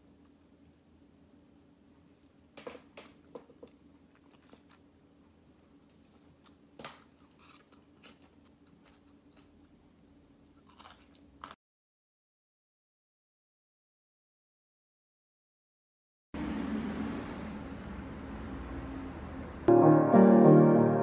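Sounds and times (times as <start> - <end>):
low steady hum: 0.0 - 11.6
close-up chewing with crunches: 3.2 - 4.9, 5.9 - 9.8, 10.5 - 11.6.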